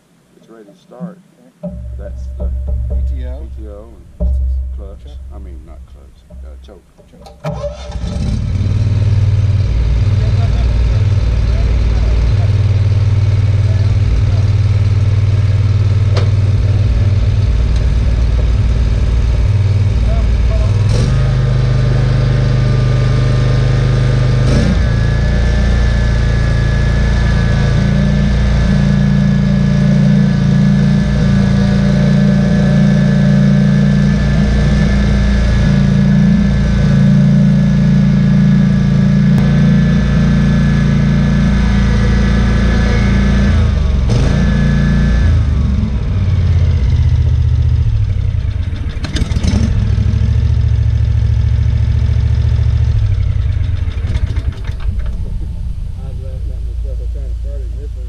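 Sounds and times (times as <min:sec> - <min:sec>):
short knocks: 0:01.0 - 0:07.7
mower engine running: 0:01.6 - 0:58.0.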